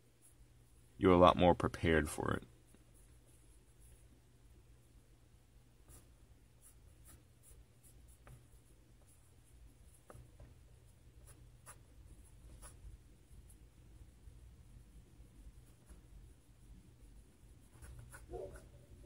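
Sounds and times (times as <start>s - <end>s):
low steady hum: 0.0s - 19.0s
colored pencil scratching on paper: 5.8s - 19.0s.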